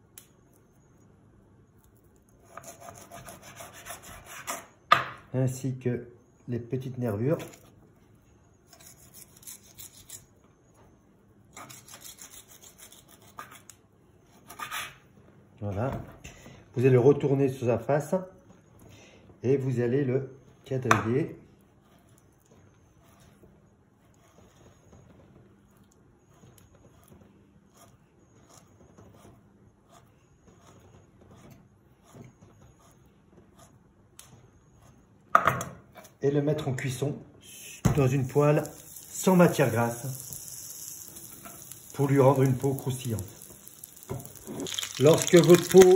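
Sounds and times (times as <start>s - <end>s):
knife scraping on cutting board: 2.4s - 4.8s, 8.7s - 10.3s, 11.5s - 13.7s, 14.3s - 15.0s.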